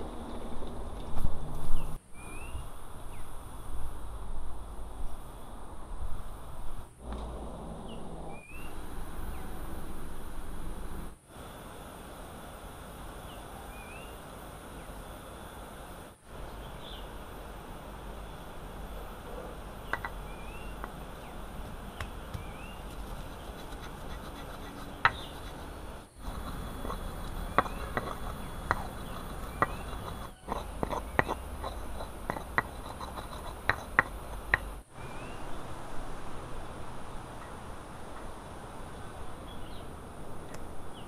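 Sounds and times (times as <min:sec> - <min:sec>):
insects buzzing: 0:01.2 - 0:35.9
bird chirps: 0:01.7 - 0:03.3, 0:07.8 - 0:09.6, 0:19.8 - 0:23.6
sharp taps and knocks: 0:19.9 - 0:20.2, 0:21.6 - 0:23.1, 0:25.0 - 0:25.4, 0:26.3 - 0:34.8.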